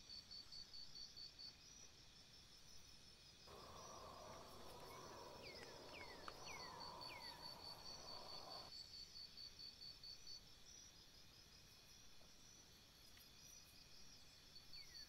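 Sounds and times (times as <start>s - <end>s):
high-pitched insect pulsing: 3.5s - 8.7s
small bird chirping: 3.5s - 8.7s.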